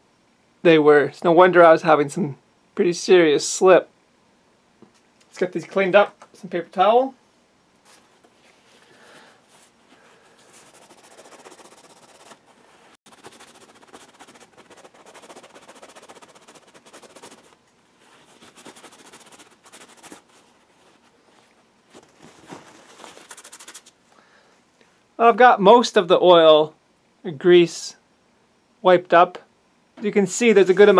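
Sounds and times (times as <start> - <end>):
paper towel rubbing and crinkling: 9.5 - 23.9, 30.4 - 30.9.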